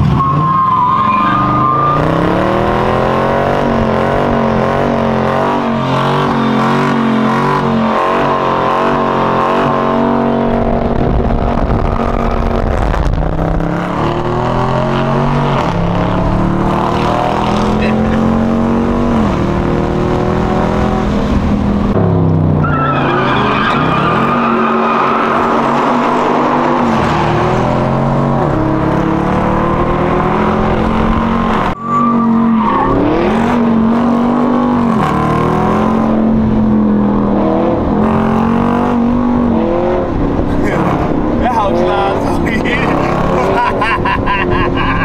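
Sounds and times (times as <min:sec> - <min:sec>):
high squeal: 0:00.0 - 0:03.0, 0:22.6 - 0:25.8, 0:31.8 - 0:33.5
car engine revving: 0:00.0 - 0:45.0.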